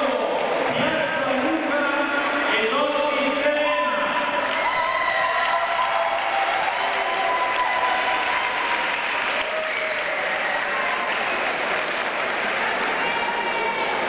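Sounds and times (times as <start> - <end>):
audience clapping: 0.0 - 3.0, 4.1 - 14.0.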